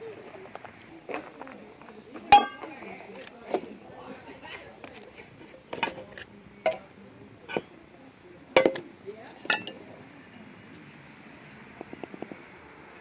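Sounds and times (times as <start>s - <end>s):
metal cans knocking and clinking: 2.3s - 2.7s, 8.6s - 8.9s.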